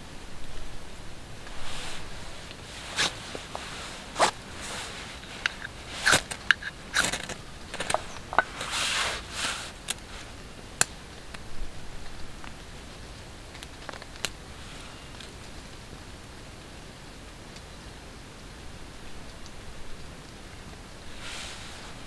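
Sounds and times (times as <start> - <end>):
wood shavings crunching and rustling: 1.4 - 10.5
knife scraping ferro rod: 1.6 - 10.2.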